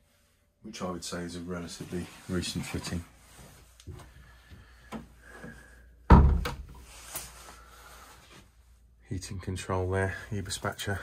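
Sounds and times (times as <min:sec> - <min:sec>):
wooden door thump shut: 0:06.1 - 0:06.7.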